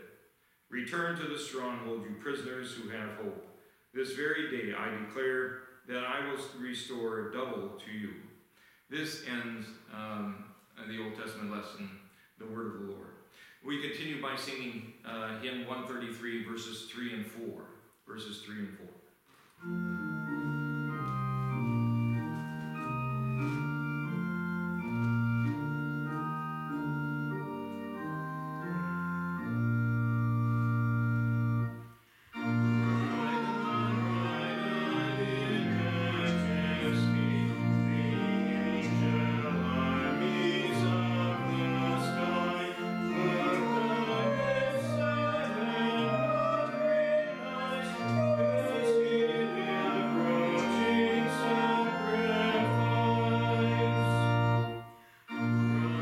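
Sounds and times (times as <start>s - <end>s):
church organ playing a hymn: 0.8s - 3.3s, 4.0s - 5.2s, 19.6s - 56.0s.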